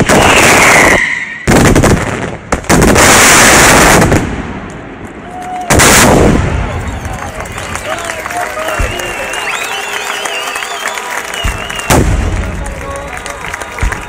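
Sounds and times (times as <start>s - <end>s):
falling firework whistle: 0.0s - 1.5s, 8.6s - 12.5s.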